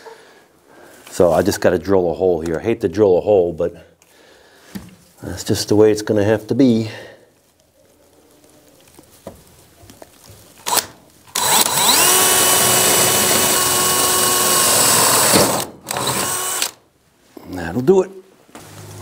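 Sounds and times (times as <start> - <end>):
cordless drill drilling wood: 10.6 - 16.8.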